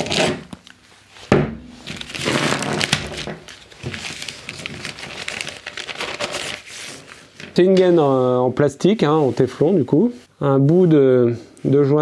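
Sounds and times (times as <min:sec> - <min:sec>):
sharp knock: 0:01.3 - 0:02.2
plastic bag crinkling: 0:01.8 - 0:07.7.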